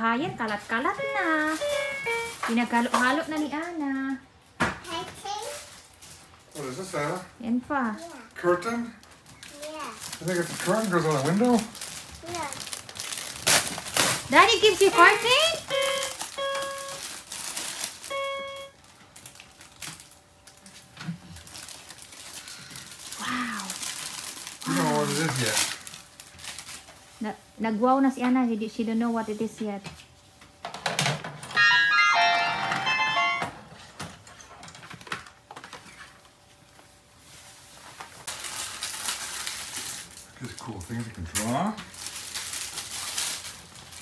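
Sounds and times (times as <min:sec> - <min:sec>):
plastic mat rustling: 0:00.0 - 0:03.8, 0:04.8 - 0:31.4, 0:33.7 - 0:44.0
toy keyboard note: 0:00.9 - 0:02.5, 0:14.9 - 0:17.1, 0:18.1 - 0:18.8, 0:31.5 - 0:33.6
plastic package crinkling: 0:01.0 - 0:03.2, 0:08.0 - 0:27.2, 0:38.2 - 0:44.0.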